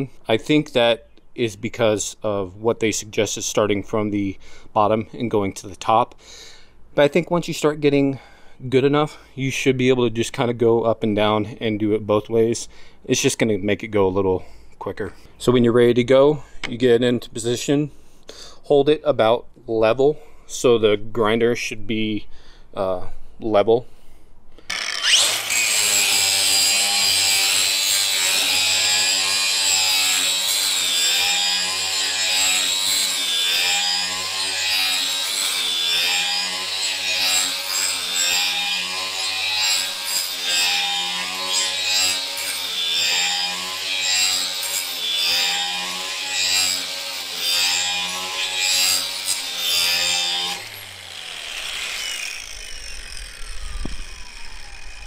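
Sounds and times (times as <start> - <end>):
angle grinder grinding steel: 24.7 - 55.0
grinder spinning down: 24.7 - 55.0.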